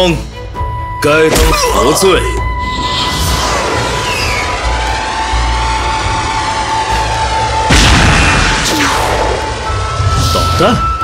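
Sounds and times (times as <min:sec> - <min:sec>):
background music: 0:00.0 - 0:11.0
falling whistle: 0:02.6 - 0:04.8
loud missile blast: 0:07.7 - 0:09.4.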